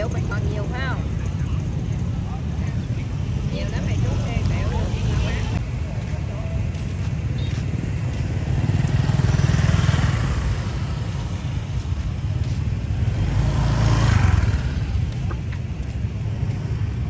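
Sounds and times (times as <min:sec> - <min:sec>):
motorbike traffic rumble: 0:00.0 - 0:17.0
vehicle passing by: 0:07.9 - 0:17.0.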